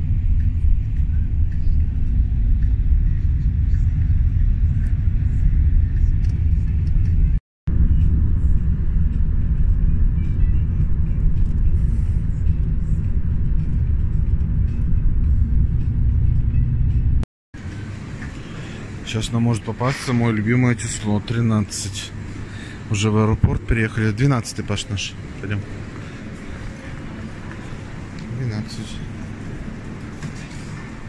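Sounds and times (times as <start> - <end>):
car road and engine rumble: 0.0 - 19.6.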